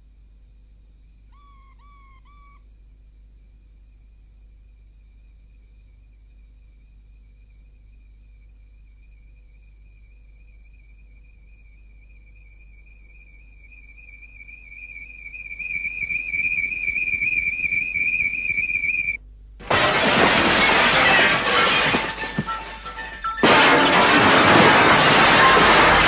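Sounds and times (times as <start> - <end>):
high wavering theremin-like tone: 13.8 - 19.2
harsh crash of noise: 19.6 - 26.0.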